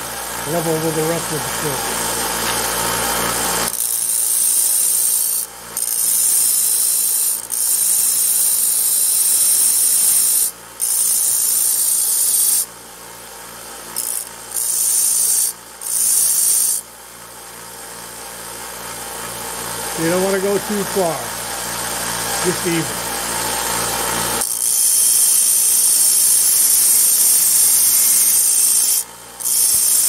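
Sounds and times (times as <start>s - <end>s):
hissing metal rasp: 24.4s - 30.0s.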